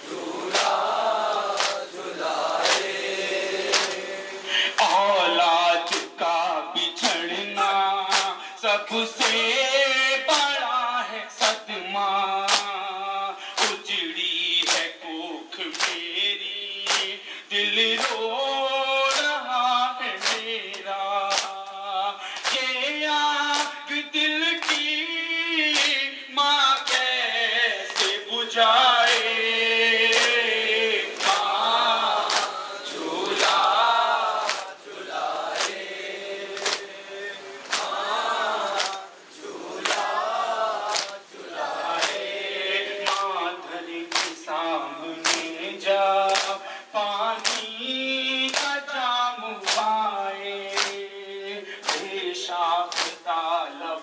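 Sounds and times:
men chanting in unison: 0.0 - 54.0
hands slapping chests: 0.5 - 0.8, 1.5 - 1.9, 2.6 - 3.0, 3.6 - 4.1, 5.9 - 6.2, 7.0 - 7.3, 8.1 - 8.4, 12.5 - 12.8, 13.6 - 13.8, 14.6 - 14.9, 15.7 - 16.1, 16.9 - 17.2, 19.1 - 19.4, 20.2 - 20.5, 21.3 - 21.6, 22.3 - 22.7, 24.6 - 24.9, 25.7 - 26.0, 30.1 - 30.4, 32.2 - 32.6, 34.4 - 34.8, 35.4 - 35.8, 36.6 - 36.9, 37.6 - 38.0, 38.7 - 39.0, 39.8 - 40.2, 40.9 - 41.2, 41.9 - 42.3, 43.0 - 43.3, 44.1 - 44.4, 45.2 - 45.5, 46.3 - 46.6, 47.4 - 47.7, 48.5 - 48.8, 49.6 - 49.9, 50.7 - 51.0, 51.8 - 52.1, 52.9 - 53.2.

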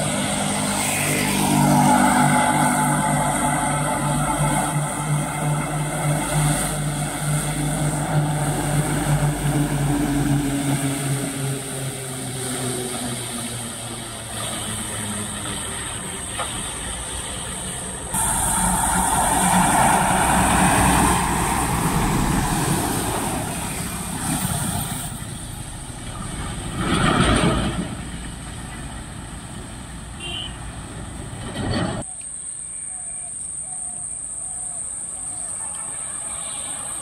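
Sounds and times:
motorcycle passing: 0.0 - 16.2, 17.1 - 28.1
high-pitched whine: 0.0 - 26.7, 31.8 - 37.0
truck passing on wet road: 0.0 - 32.0
distant traffic: 0.0 - 37.0.

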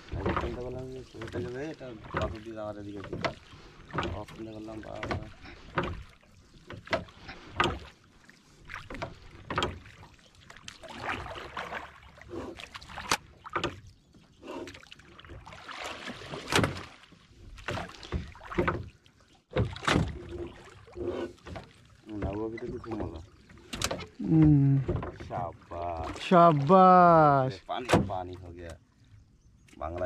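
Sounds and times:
knocks against wooden hull: 0.0 - 7.9, 8.8 - 10.0, 13.0 - 13.8, 16.0 - 25.6, 27.7 - 28.8
water splashing: 0.0 - 30.0.

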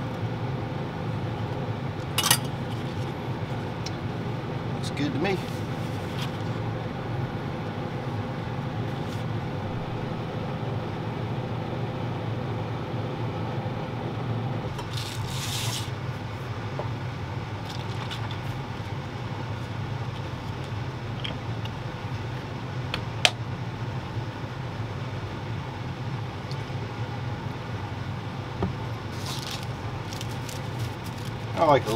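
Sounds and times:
steady low hum: 0.0 - 31.9
scrape on counter: 15.0 - 15.9.

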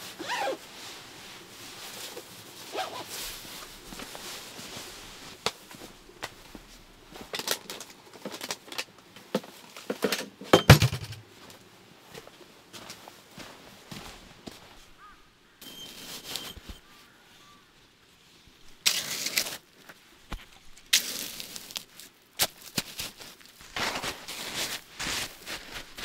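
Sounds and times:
clothing rustle: 0.0 - 9.9
jacket zipper: 0.2 - 0.6, 2.7 - 3.1
footsteps: 1.6 - 7.3, 10.8 - 14.9, 22.8 - 26.0.

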